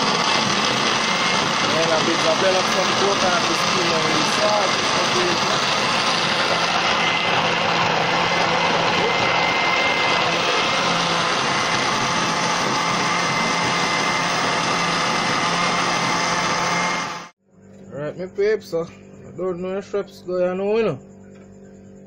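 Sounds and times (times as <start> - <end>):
electric blender running: 0.0 - 17.4.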